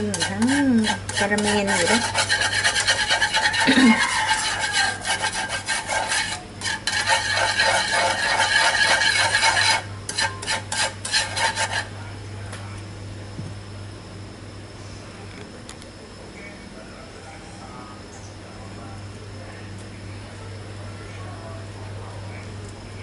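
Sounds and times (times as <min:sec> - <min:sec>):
utensil scraping sugar in pan: 0:00.0 - 0:12.0.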